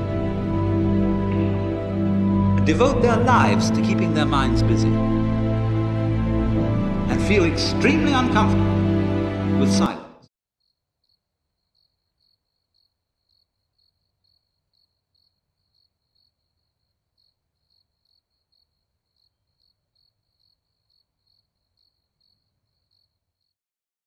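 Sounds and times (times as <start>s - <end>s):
insect chirping: 10.6s - 23.6s.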